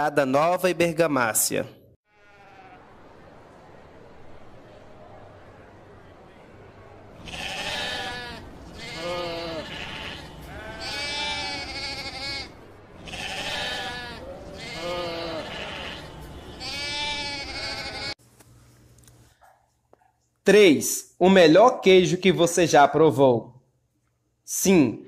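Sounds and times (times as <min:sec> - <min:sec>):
sheep bleating: 0:02.1 - 0:02.9, 0:07.2 - 0:18.2.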